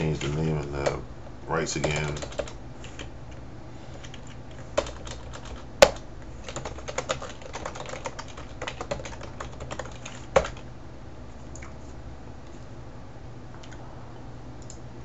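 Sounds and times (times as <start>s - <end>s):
computer keyboard typing: 0.0s - 1.0s, 1.8s - 3.1s, 4.0s - 10.6s.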